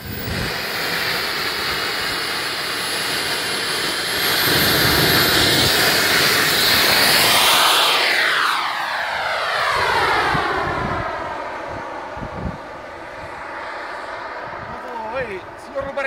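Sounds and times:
jet turbine whine: 0.0 - 16.0.

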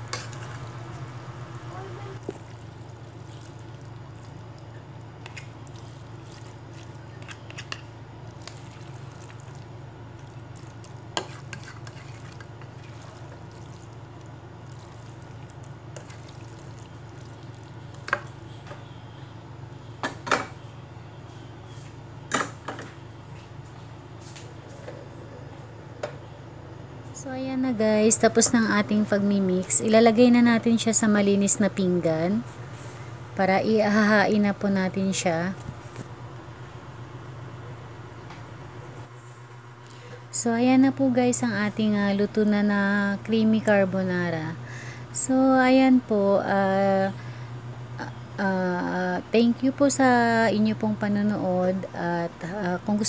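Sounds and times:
wet stirring of pasta: 0.0 - 1.2, 2.2 - 18.4
steady low hum: 0.0 - 53.0.

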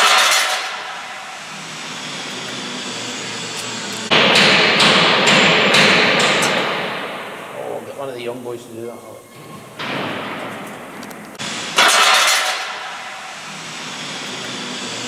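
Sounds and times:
hammer strikes on metal: 0.0 - 1.4, 4.1 - 7.7, 9.8 - 13.4
clatter of steel being worked: 0.0 - 7.1, 9.4 - 15.0
workshop background noise: 0.0 - 15.0.

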